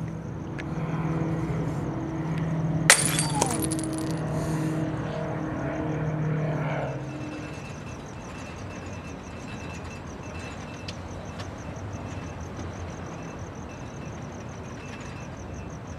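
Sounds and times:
glass shattering: 0:02.9 - 0:04.2
small glass clink: 0:02.9 - 0:04.2.

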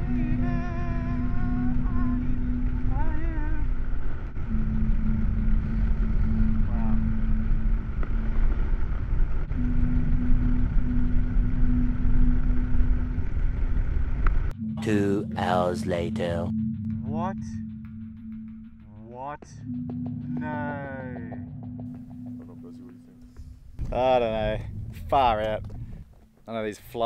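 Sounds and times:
person calling out: 0:14.8 - 0:16.5
heavy wind rush: 0:23.7 - 0:26.1.

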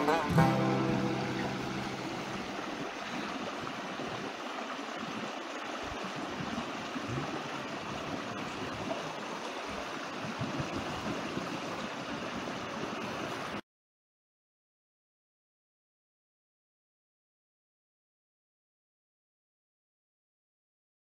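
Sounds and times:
creek babbling over rocks: 0:00.0 - 0:13.6.

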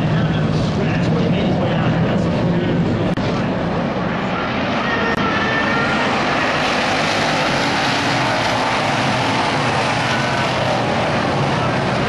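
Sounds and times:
race car engines roaring: 0:00.0 - 0:12.0.

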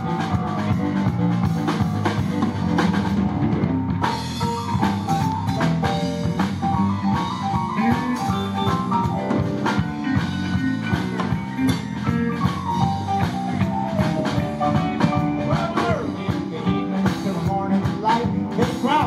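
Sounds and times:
drum kit: 0:00.0 - 0:19.0
electric guitar: 0:00.0 - 0:19.0
stage piano: 0:00.0 - 0:19.0.

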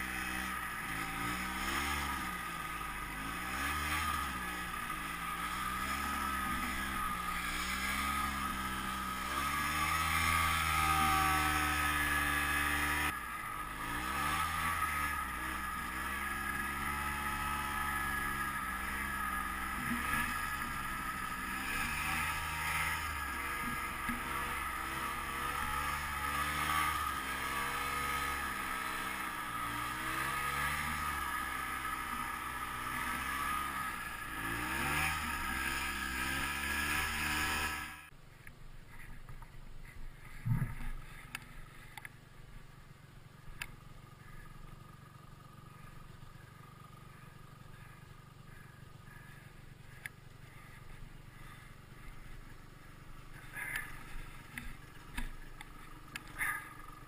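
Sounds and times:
snowmobile engine running under load: 0:00.0 - 0:38.1, 0:38.9 - 0:57.0.

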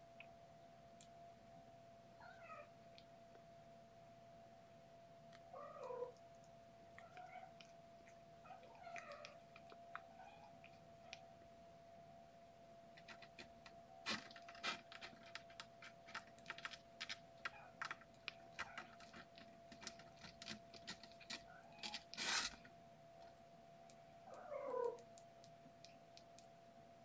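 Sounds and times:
kitten claws scratching: 0:12.9 - 0:22.7.

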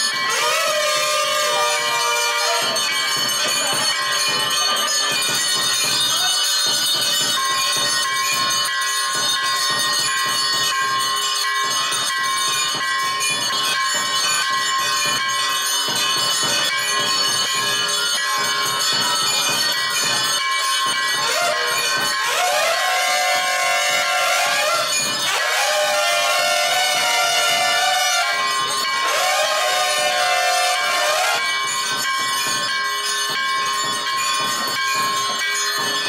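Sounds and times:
music: 0:00.0 - 0:25.3, 0:29.8 - 0:36.0
bells ringing: 0:00.0 - 0:36.0.

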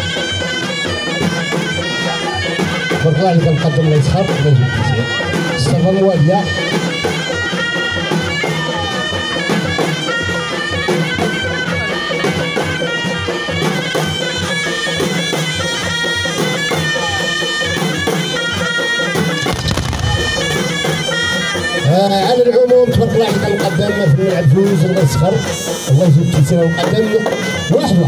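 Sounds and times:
shawms playing reedy melody: 0:00.0 - 0:27.7
frame drums beating: 0:14.9 - 0:22.5
low rumble: 0:19.6 - 0:21.0.

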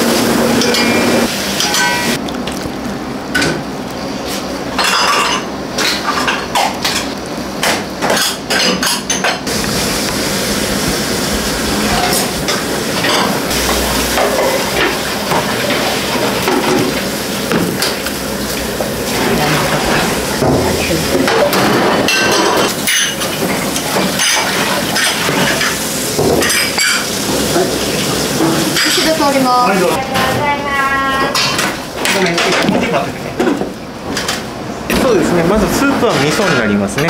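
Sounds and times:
kitchen noise hiss: 0:00.0 - 0:02.2, 0:03.2 - 0:36.9
utensils clinking on bowls and pots: 0:00.6 - 0:02.2, 0:04.8 - 0:09.5, 0:11.8 - 0:30.3, 0:31.1 - 0:33.6, 0:35.7 - 0:37.0.

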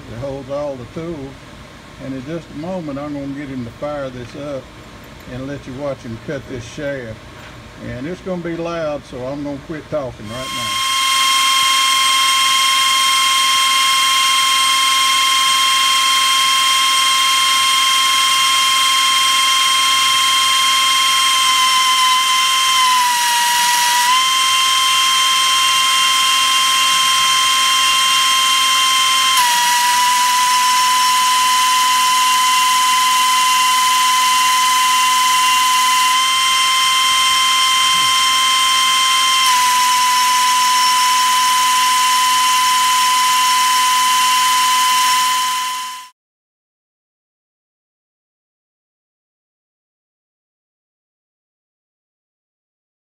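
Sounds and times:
air die grinder whining: 0:10.3 - 0:46.1.

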